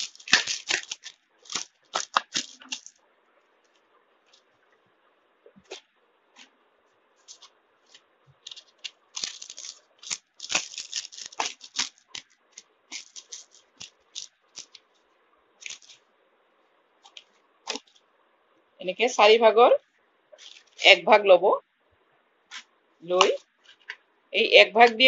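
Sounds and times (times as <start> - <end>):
abrasive paper crackling and tearing: 0.0 - 2.9, 7.2 - 14.8, 15.6 - 16.0.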